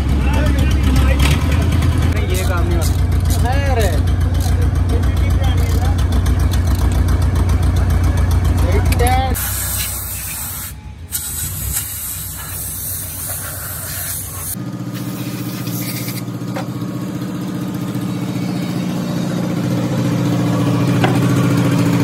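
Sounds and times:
pressure spray hissing: 9.4 - 16.5, 17.9 - 20.2.

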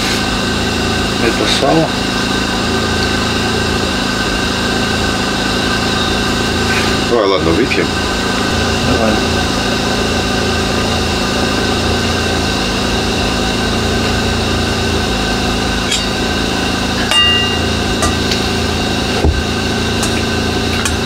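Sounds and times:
steady mechanical hum: 0.0 - 21.0
tableware clinking: 17.0 - 18.4
dull knock: 19.2 - 19.5.

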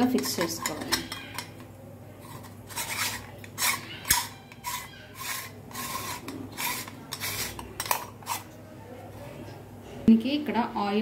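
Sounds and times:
metal parts scraping: 2.2 - 8.5.

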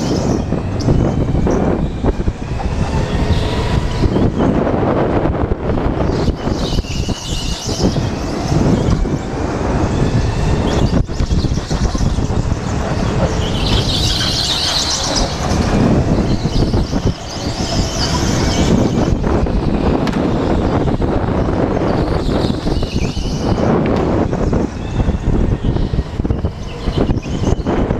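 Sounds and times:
wind and tyre rumble: 0.0 - 27.9.

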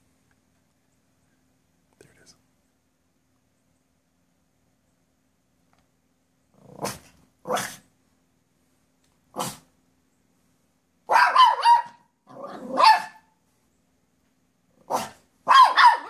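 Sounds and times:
dog barking: 6.8 - 7.8, 9.4 - 9.6, 11.1 - 13.3, 14.9 - 16.0.

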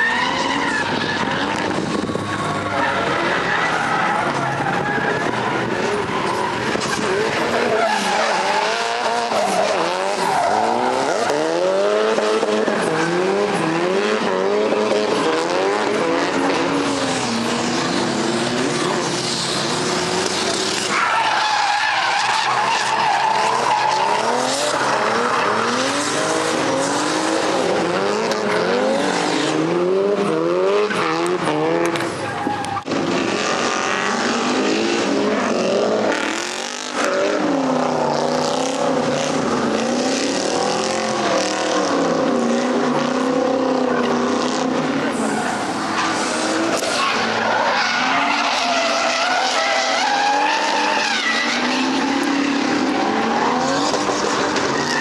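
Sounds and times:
tyre screech: 0.0 - 14.4, 15.0 - 29.6, 43.3 - 55.0
car engines revving: 0.0 - 55.0.

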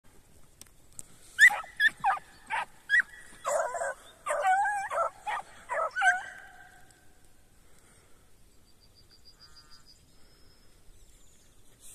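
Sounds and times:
hounds yelping: 1.4 - 7.0.

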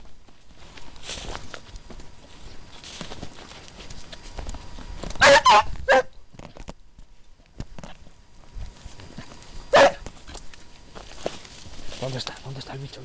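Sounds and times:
footsteps through scrub: 0.0 - 13.0
dog barking: 5.2 - 6.1, 9.7 - 10.0.

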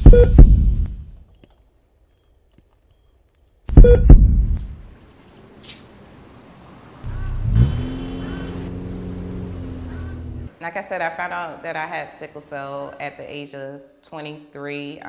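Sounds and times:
deep boom: 0.0 - 1.1, 3.7 - 4.8
road traffic: 4.6 - 12.2
car driving past: 5.0 - 10.6.

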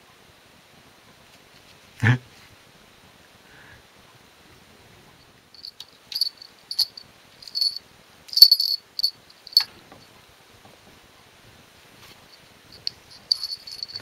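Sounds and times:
sharp clinks: 5.6 - 9.7, 12.7 - 14.0
small bell jingling: 5.6 - 9.7, 12.3 - 14.0.

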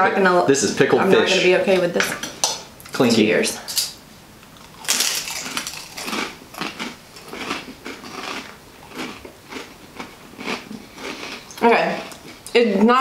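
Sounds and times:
crispbread crunching: 4.6 - 12.4.

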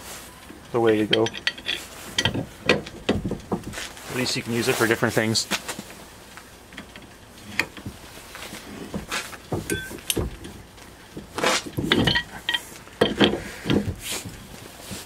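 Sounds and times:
wrench clanking on steel nut: 0.8 - 3.7, 9.6 - 10.6, 11.2 - 13.9.

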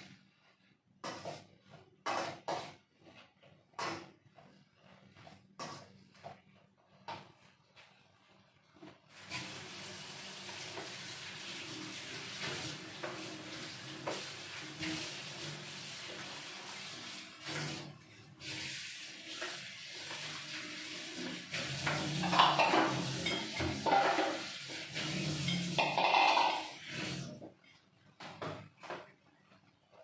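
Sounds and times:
tap water running into sink: 9.1 - 27.5
clattering at sink: 21.6 - 27.1.

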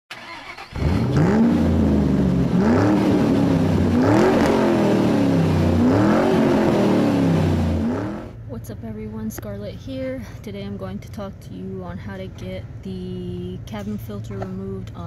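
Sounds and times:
car engine revving: 0.1 - 8.4.

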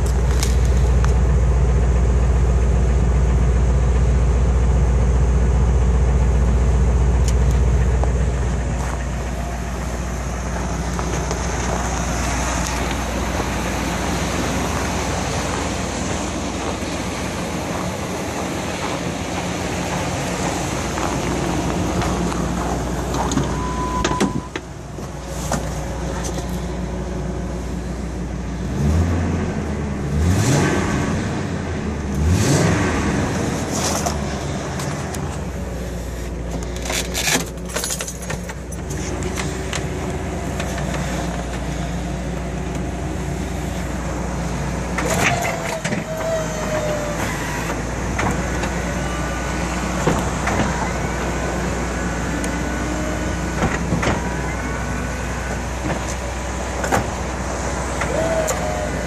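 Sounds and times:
truck engine idling: 0.0 - 59.0
short beep: 23.4 - 24.6.

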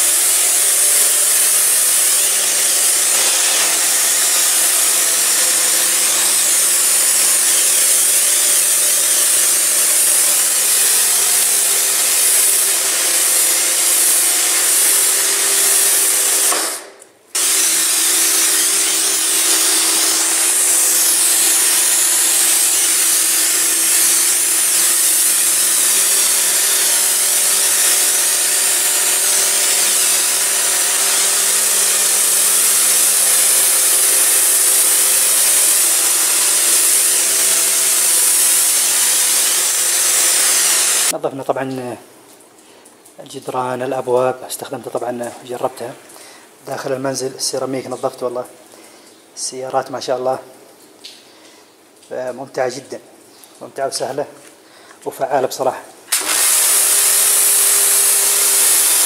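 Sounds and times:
pressure washer motor hum: 0.0 - 41.1, 56.1 - 59.0
high-pressure water jet hissing: 0.0 - 41.2, 56.1 - 59.0.

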